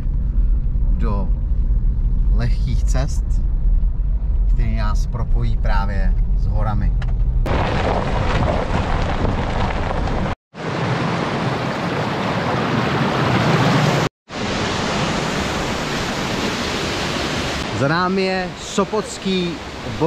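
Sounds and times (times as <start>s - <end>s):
waterfall roaring: 10.6s - 20.0s.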